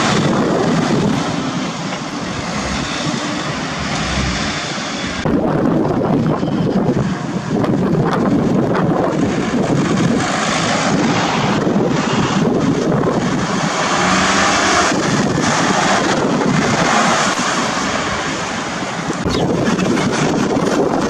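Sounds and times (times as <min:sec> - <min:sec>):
wind buffeting microphone: 0:00.0 - 0:21.0
vehicle driving past: 0:01.5 - 0:05.5.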